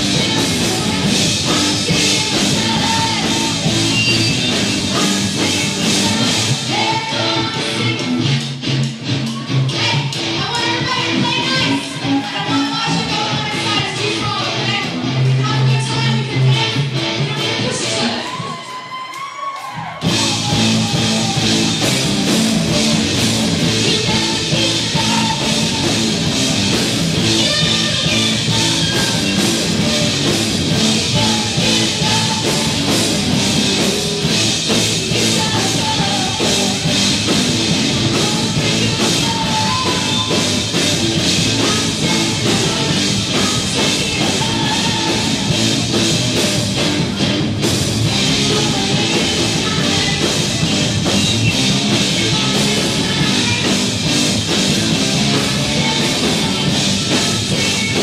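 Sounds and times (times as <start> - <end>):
drum kit: 0.0 - 18.6, 19.7 - 58.0
electric guitar: 0.0 - 58.0
woman singing into microphone: 5.0 - 8.4, 9.7 - 18.3, 35.1 - 37.0, 38.0 - 40.6, 41.4 - 45.5, 48.4 - 50.8, 51.9 - 54.0.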